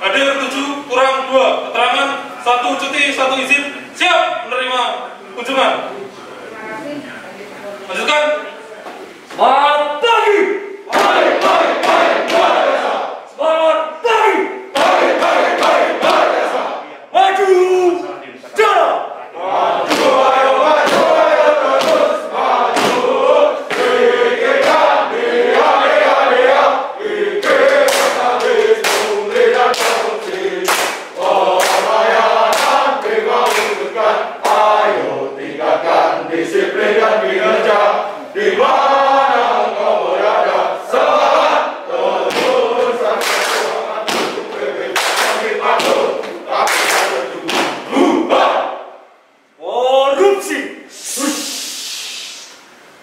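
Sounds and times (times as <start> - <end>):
men chanting in unison: 10.9 - 13.3, 14.2 - 17.0, 19.3 - 48.9.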